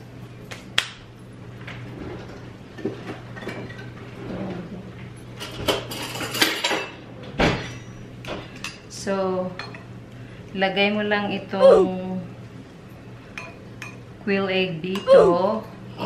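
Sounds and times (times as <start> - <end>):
dishes clinking: 5.4 - 8.8, 13.3 - 14.0
steady low hum: 7.1 - 16.0.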